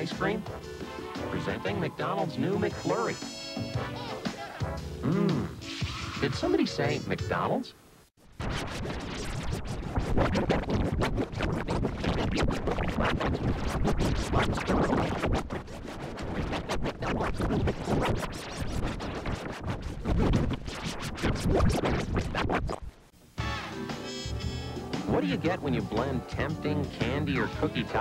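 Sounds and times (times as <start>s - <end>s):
harsh scratchy stuttering noise: 0.0s - 3.4s, 8.3s - 23.1s
music: 0.0s - 7.6s, 23.4s - 28.0s.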